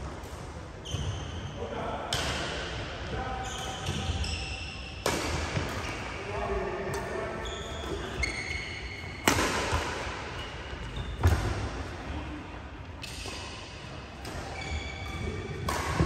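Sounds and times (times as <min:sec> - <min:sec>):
racket hitting shuttlecock: 0:05.0 - 0:06.0, 0:09.2 - 0:10.2, 0:14.2 - 0:16.0.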